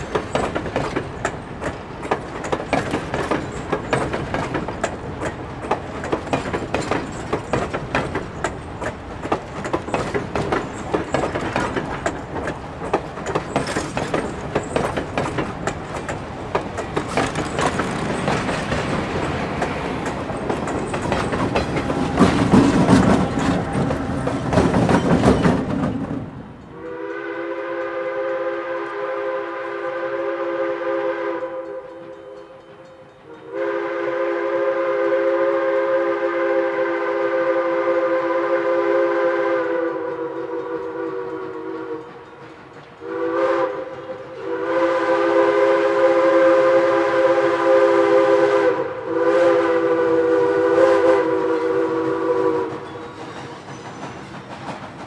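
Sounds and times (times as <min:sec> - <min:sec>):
diesel locomotive rumbling past: 0:00.0 - 0:55.0
steam whistle blasts: 0:26.7 - 0:42.2, 0:43.0 - 0:53.2.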